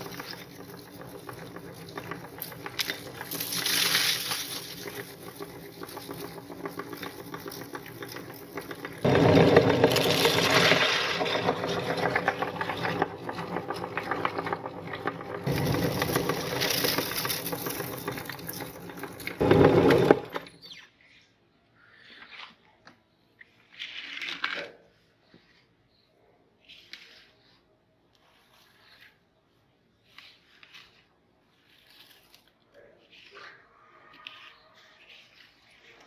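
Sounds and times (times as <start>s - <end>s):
electric meat grinder motor: 0.0s - 20.4s.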